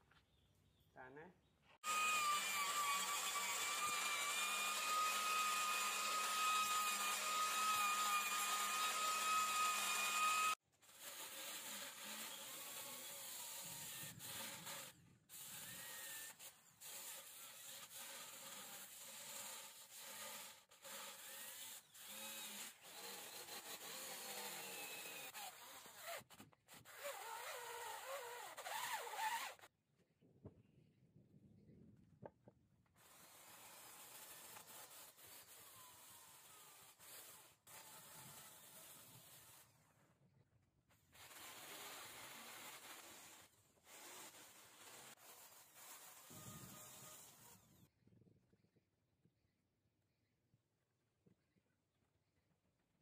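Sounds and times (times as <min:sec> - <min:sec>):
angle grinder whining: 0:01.8 - 0:10.6
cordless drill sanding wood: 0:01.8 - 0:29.7, 0:33.0 - 0:40.0, 0:41.1 - 0:47.9.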